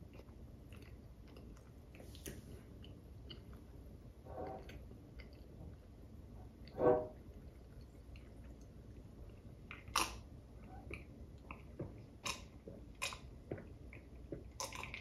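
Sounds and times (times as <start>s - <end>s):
mouth and swallowing sounds: 10.8s - 15.0s.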